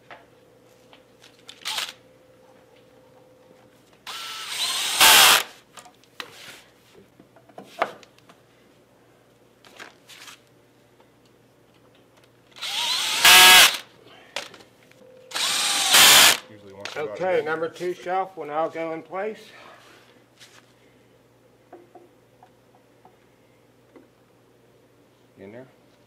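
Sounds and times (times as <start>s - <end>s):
cordless drill driving screws: 1.6s - 2.0s, 4.0s - 5.6s, 12.6s - 13.8s, 15.3s - 16.4s.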